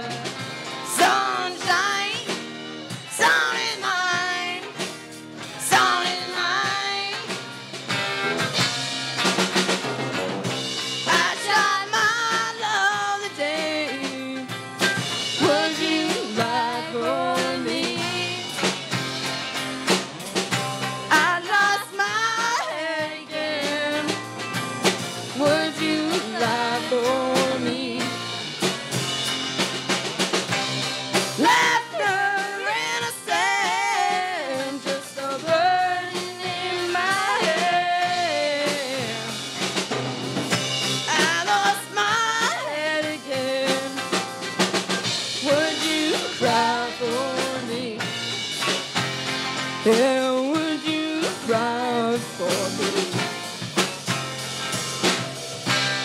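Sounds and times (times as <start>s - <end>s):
woman singing: 0.0s - 4.9s, 5.5s - 7.4s, 11.0s - 18.8s, 21.1s - 24.3s, 25.3s - 28.4s, 31.3s - 39.5s, 41.0s - 44.2s, 45.3s - 48.2s, 49.8s - 53.4s
live rock band playing: 0.0s - 56.0s.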